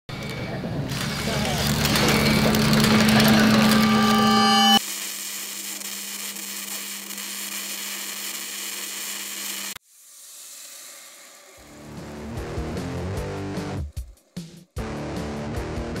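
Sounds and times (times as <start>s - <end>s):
electric guitar music: 11.8s - 16.0s.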